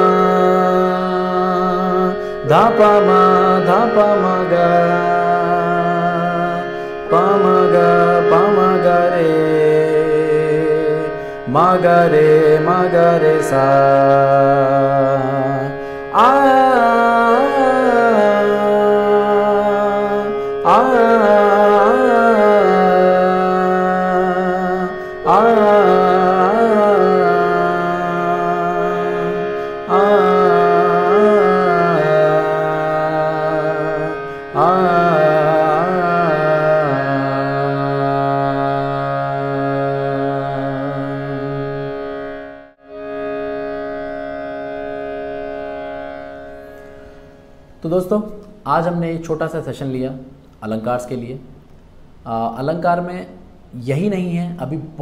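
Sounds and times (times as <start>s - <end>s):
man singing vocal exercise: 0.0s - 41.9s
sustained electronic keyboard notes: 0.0s - 51.8s.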